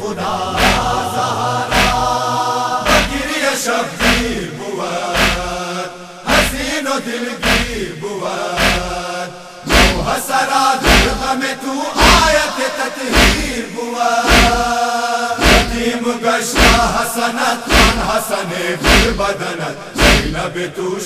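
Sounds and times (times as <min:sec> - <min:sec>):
men chanting in chorus: 0:00.0 - 0:21.0
hands striking chests: 0:05.2 - 0:05.5, 0:09.7 - 0:10.0, 0:10.8 - 0:11.2.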